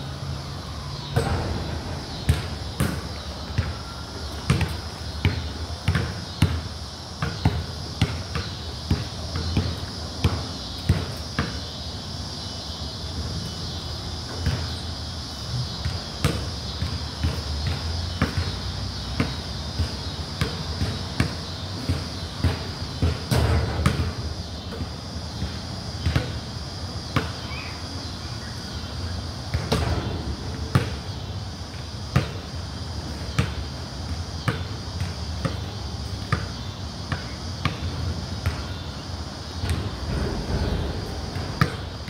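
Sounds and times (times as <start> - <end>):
basketball bouncing on concrete: 1.2 - 3.8, 4.4 - 11.6, 14.4 - 14.8, 15.8 - 26.4, 29.5 - 31.2, 32.1 - 32.5, 33.3 - 38.8, 41.6 - 41.8.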